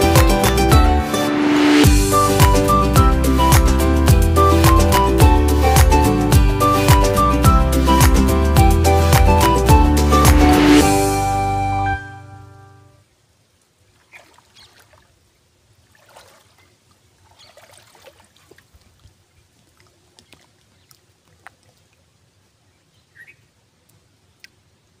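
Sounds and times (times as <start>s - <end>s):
background music: 0.0s - 12.9s
pond water splashes: 13.3s - 22.7s.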